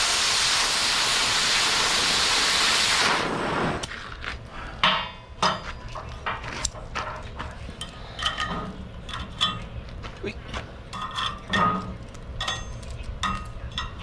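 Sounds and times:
cutting torch hissing: 0:00.0 - 0:04.2
metallic clinks and taps: 0:10.9 - 0:14.0.

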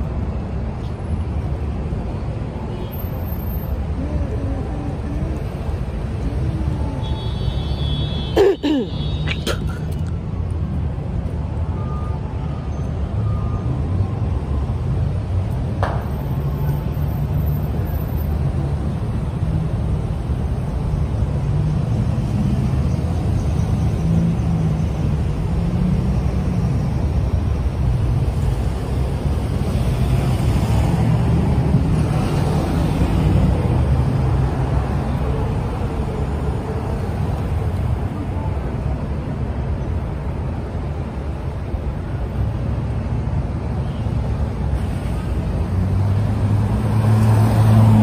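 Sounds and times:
traffic on wet pavement: 0:00.0 - 0:48.0.

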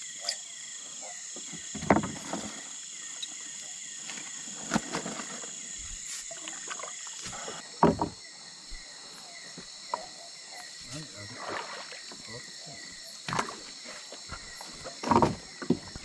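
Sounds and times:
crickets and insects chirping: 0:00.0 - 0:16.0
small boat knocking: 0:07.8 - 0:08.2.

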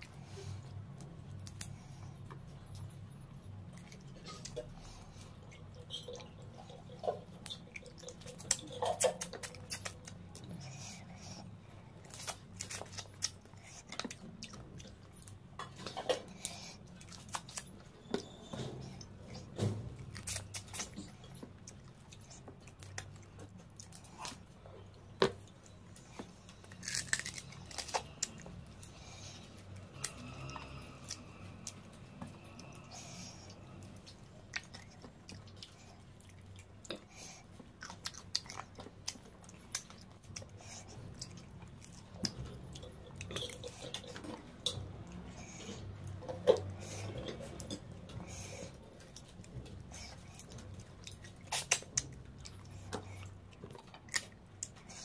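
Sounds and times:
wet chewing and crunching: 0:00.0 - 0:55.0.

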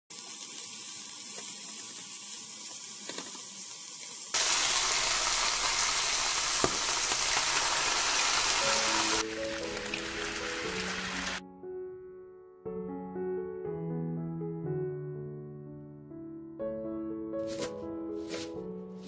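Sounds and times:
pork sizzling in frying pan: 0:00.1 - 0:11.4.

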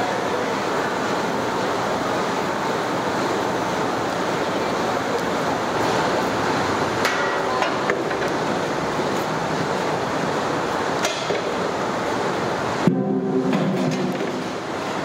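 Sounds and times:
steady rushing noise: 0:08.5 - 0:15.0
low humming tone: 0:12.8 - 0:14.8.

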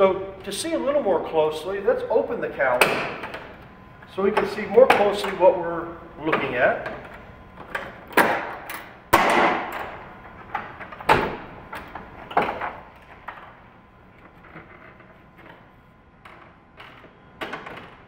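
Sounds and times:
latch clicks and clunks: 0:06.3 - 0:13.6.

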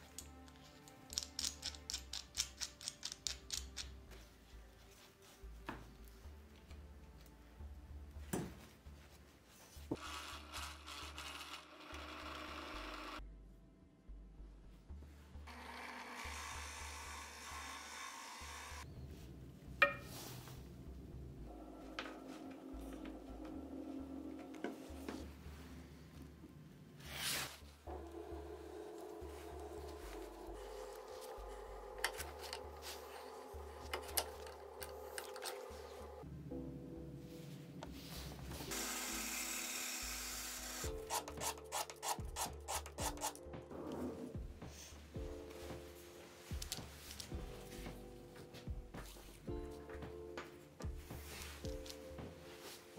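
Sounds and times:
background music: 0:00.0 - 0:52.9
drill press cutting wood: 0:15.5 - 0:18.8, 0:38.7 - 0:41.0.

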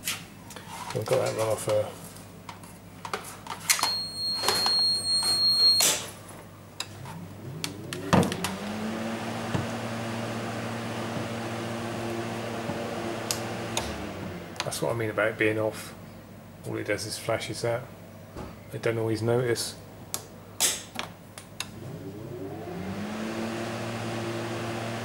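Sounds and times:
refrigeration motor humming: 0:06.8 - 0:14.9, 0:21.7 - 0:25.0.

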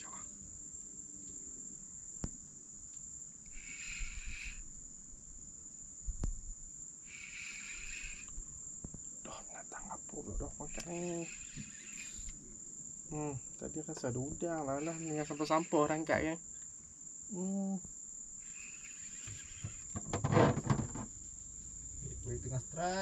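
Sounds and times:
insects shrilling: 0:00.0 - 0:23.0
low insect buzzing call: 0:00.0 - 0:23.0
sharp knocks: 0:19.3 - 0:21.1.

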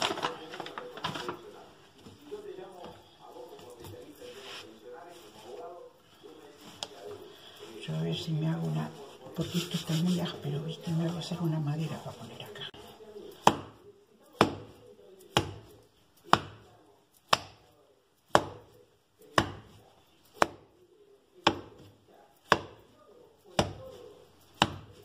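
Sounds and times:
dough slammed on stone countertop: 0:13.4 - 0:13.8, 0:15.3 - 0:15.7, 0:16.3 - 0:16.7, 0:17.3 - 0:17.7, 0:18.3 - 0:18.7, 0:19.3 - 0:19.8, 0:21.4 - 0:22.8, 0:24.6 - 0:25.0.

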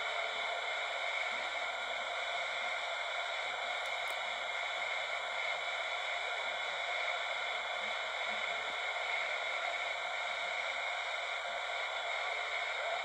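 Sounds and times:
radio static hiss: 0:06.9 - 0:13.0.

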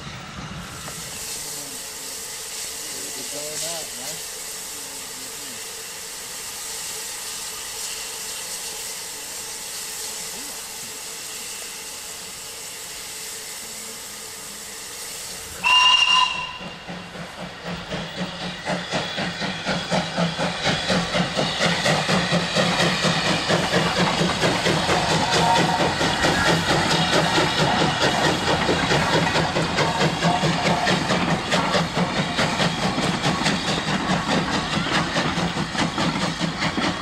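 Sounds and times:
steam hissing: 0:00.0 - 0:37.0
steam locomotive exhaust beats: 0:00.0 - 0:37.0
steam locomotive whistle: 0:15.5 - 0:16.9, 0:24.7 - 0:27.6.

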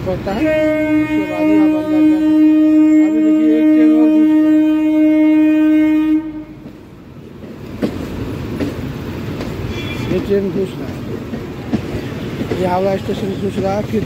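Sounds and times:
train horn blast: 0:00.2 - 0:06.7
train wheels clacking on tracks: 0:05.9 - 0:14.0.

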